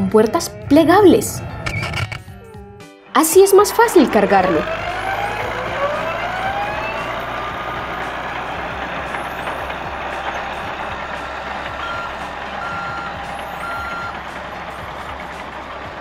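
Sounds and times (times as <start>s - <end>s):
forklift motor: 3.7s - 16.0s
reversing beeps: 11.8s - 14.2s.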